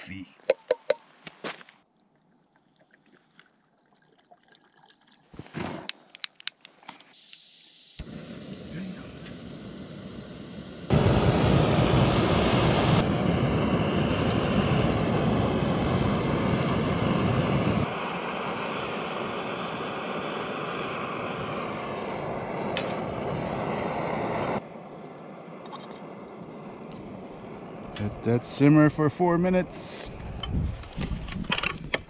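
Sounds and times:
gas stove burner hissing: 7.1 - 24.6.

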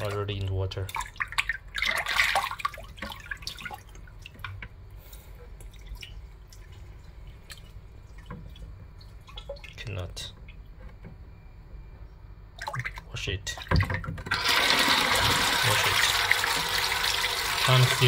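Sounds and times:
water drips: 0.0 - 10.8, 12.5 - 14.0
water sloshing in a plastic basin: 0.0 - 10.8, 12.5 - 14.3.

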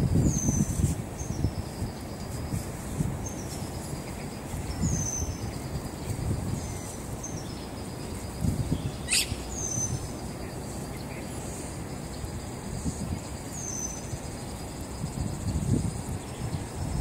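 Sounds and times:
high insect drone: 0.0 - 17.0
sharp bird chirp: 8.8 - 10.0.

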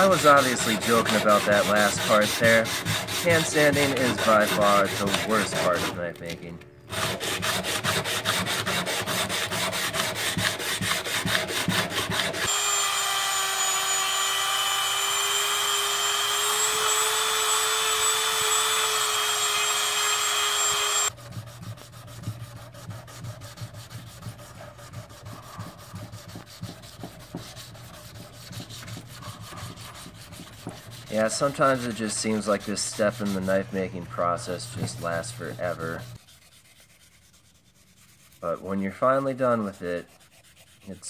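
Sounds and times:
sandpaper rubbing on blade: 0.0 - 12.8, 15.3 - 41.0
power tool high-pitched whine: 12.4 - 21.1.

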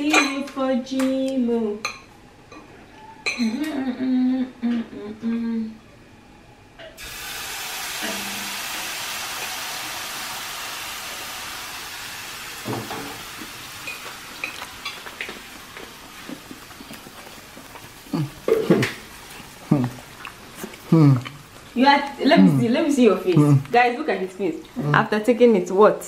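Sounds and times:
batter sizzling in a frying pan: 7.0 - 23.2.

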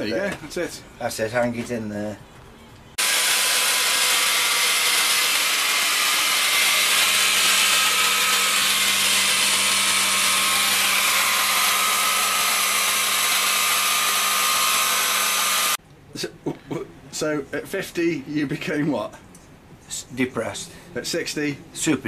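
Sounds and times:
band saw cutting metal: 3.0 - 15.8.

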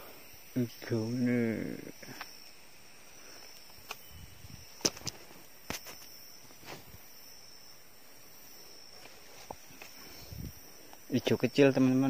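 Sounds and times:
faint high insect drone: 0.0 - 12.0
footsteps on dry forest litter: 8.9 - 10.3.

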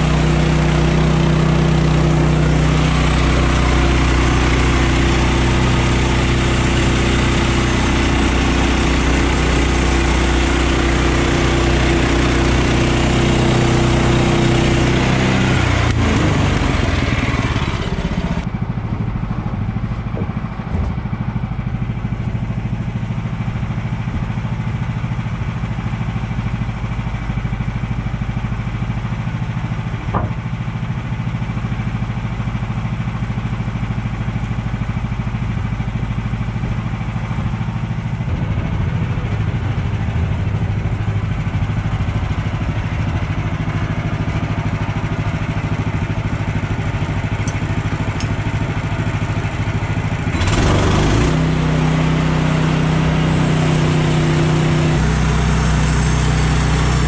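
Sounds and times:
sawmill engine running: 0.0 - 57.0
short knock: 30.1 - 30.4.

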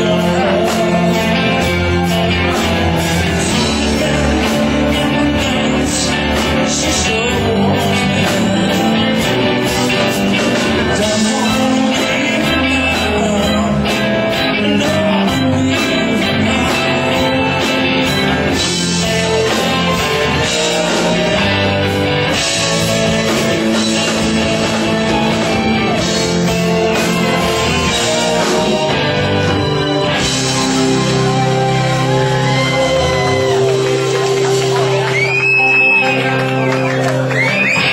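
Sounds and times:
guitar: 0.0 - 37.9
person singing: 0.0 - 37.9
rock band playing live: 0.0 - 37.9.

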